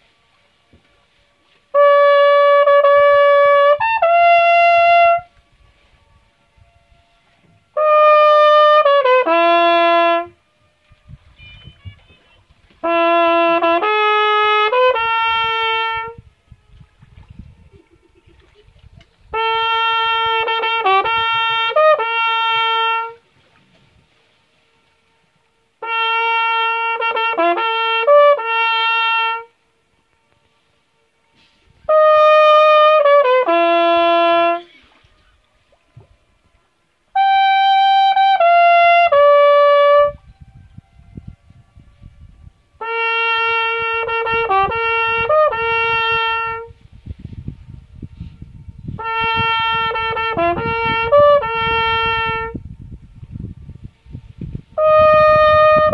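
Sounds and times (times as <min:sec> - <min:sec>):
trumpet phrases: 0:01.6 - 0:16.8, 0:19.3 - 0:23.3, 0:25.8 - 0:29.7, 0:31.0 - 0:35.5, 0:36.4 - 0:41.4, 0:42.8 - 0:46.8, 0:49.0 - 0:52.6, 0:54.8 - 0:55.9.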